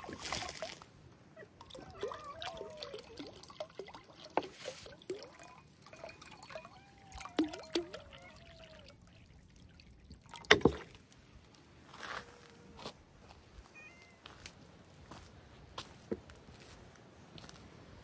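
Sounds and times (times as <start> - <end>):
water pouring into bowl: 1.6 - 11.0.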